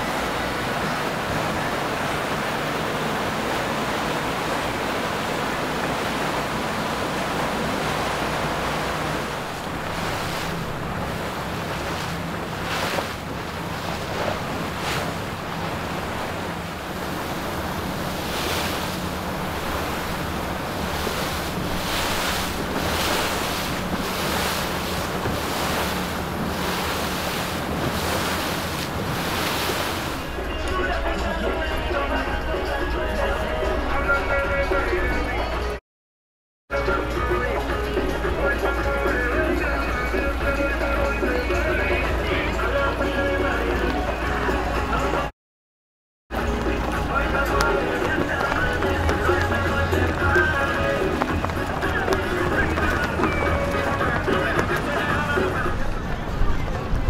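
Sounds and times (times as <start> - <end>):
wind buffeting microphone: 0.0 - 32.4, 46.4 - 57.0
boat engines humming: 0.0 - 35.8, 36.7 - 45.3, 46.3 - 57.0
rushing water and waves: 0.0 - 35.8, 36.7 - 45.4, 46.3 - 57.0.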